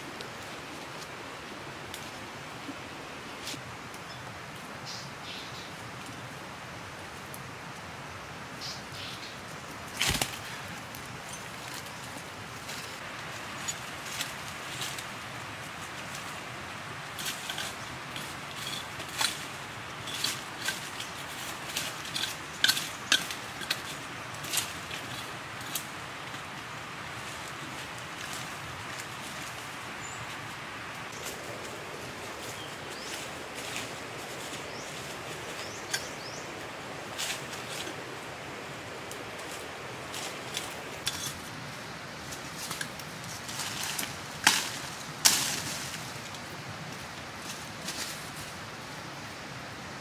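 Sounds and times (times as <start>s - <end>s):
dry leaves and twigs crackling: 0.0s - 8.0s, 8.6s - 49.5s
steady background hiss: 0.0s - 50.0s
dry twigs snapping: 9.9s - 11.0s.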